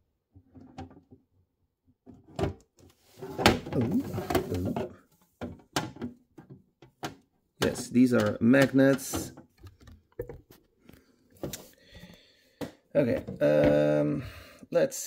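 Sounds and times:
plastic scraping: 2.9s - 11.7s
sharp plastic clicks and knocks: 5.4s - 10.6s.

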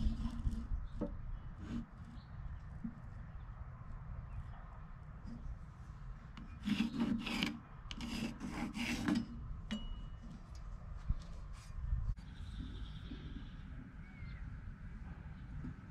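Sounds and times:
pencil scratching on wood: 6.4s - 9.3s.

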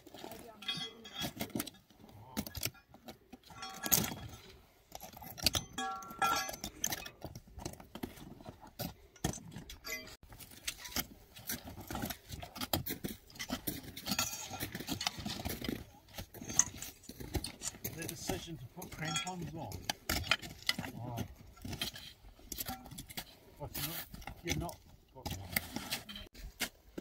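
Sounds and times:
rustling and scraping: 0.0s - 27.0s
metallic clinks and jangling: 0.1s - 11.0s, 13.0s - 23.4s.

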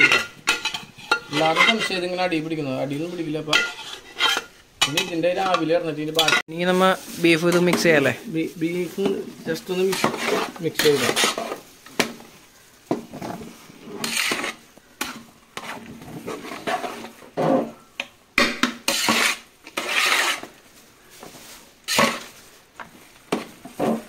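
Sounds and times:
metal spatula scraping a pot: 0.0s - 6.4s, 9.0s - 11.7s, 13.1s - 17.9s, 18.7s - 20.5s, 21.8s - 22.4s.

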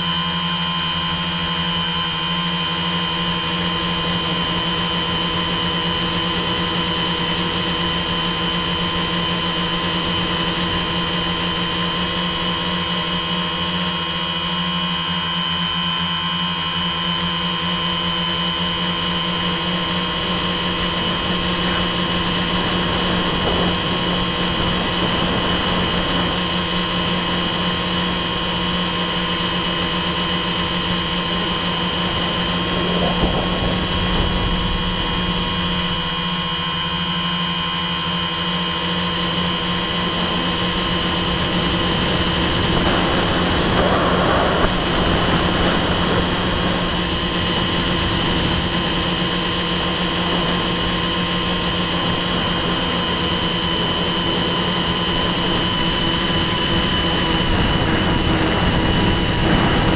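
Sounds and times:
drone motors whining: 0.0s - 59.9s.

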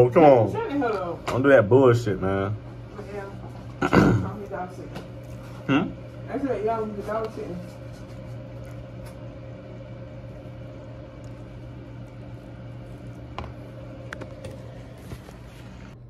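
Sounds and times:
low mechanical hum: 0.0s - 16.0s.

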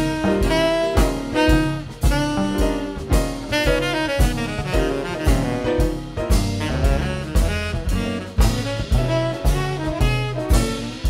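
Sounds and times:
drum kit beat: 0.0s - 11.0s
saxophone playing jazz: 0.0s - 11.0s
upright bass: 0.0s - 11.0s.

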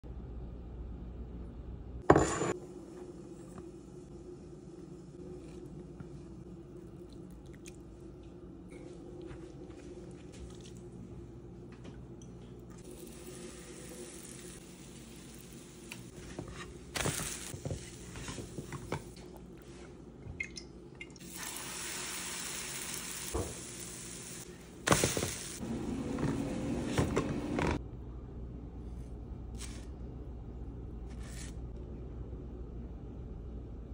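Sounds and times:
low steady hum: 0.0s - 33.9s
sizzling in frying pan: 12.8s - 18.8s, 21.2s - 25.6s.

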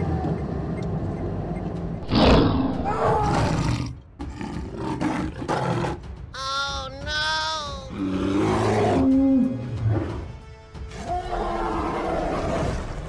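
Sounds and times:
monster roar: 2.0s - 5.4s.

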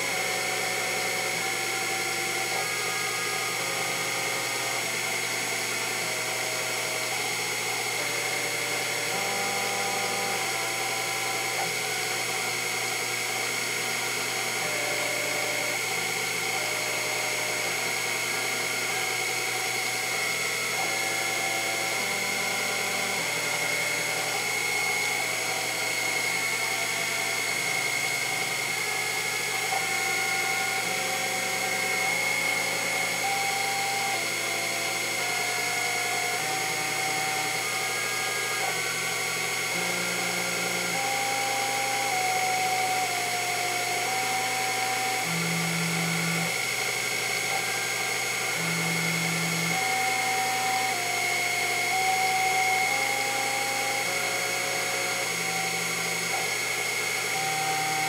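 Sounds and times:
milling machine whine: 0.0s - 58.0s
stepper motor tones: 0.0s - 58.0s.

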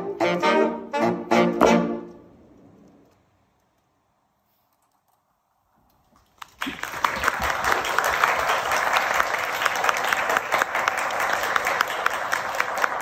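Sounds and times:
audience applause: 6.2s - 13.0s.

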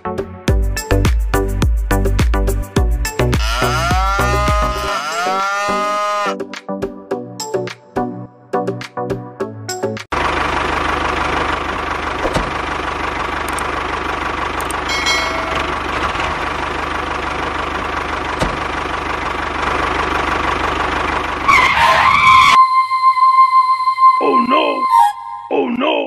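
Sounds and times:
tractor engine running: 3.3s - 6.2s, 10.1s - 22.6s.

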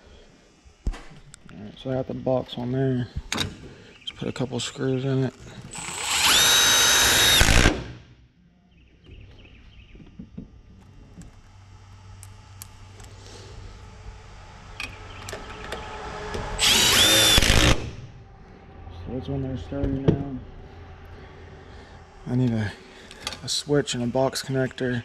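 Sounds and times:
power drill driving screws: 5.6s - 8.0s, 16.6s - 18.0s.

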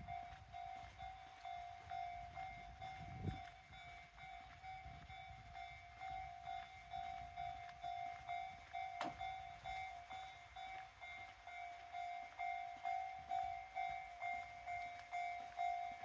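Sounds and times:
level-crossing warning bell: 0.0s - 16.0s.

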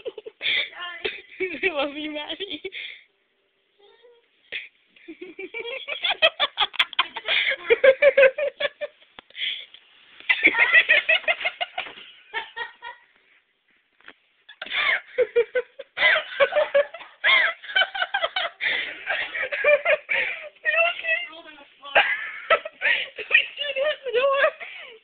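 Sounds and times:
young women giggling: 5.0s - 9.0s, 10.3s - 13.1s, 14.5s - 21.0s.

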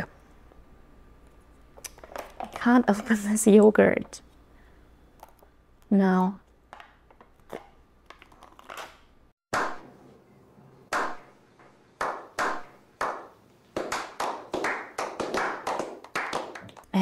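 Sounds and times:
men clapping: 12.1s - 17.0s.

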